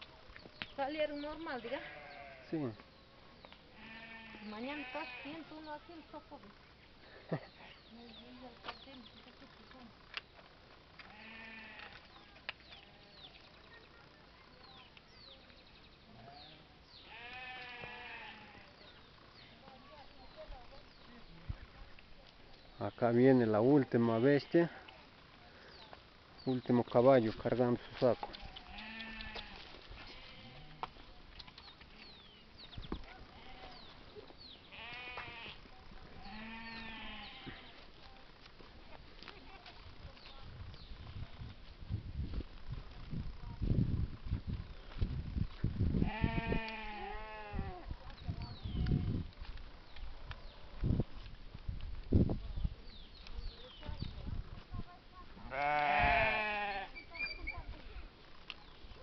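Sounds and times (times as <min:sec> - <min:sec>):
farm animal calls: 0:01.0 - 0:02.7, 0:03.7 - 0:06.2, 0:11.0 - 0:14.9, 0:16.0 - 0:21.3, 0:27.8 - 0:30.9, 0:31.9 - 0:38.0, 0:46.0 - 0:49.1, 0:55.4 - 0:58.1
sheep bleating: 0:01.5 - 0:02.7, 0:03.7 - 0:06.2, 0:11.0 - 0:13.2, 0:16.2 - 0:18.8, 0:28.5 - 0:30.9, 0:33.3 - 0:33.9, 0:34.7 - 0:37.8, 0:46.0 - 0:47.8, 0:55.4 - 0:57.2.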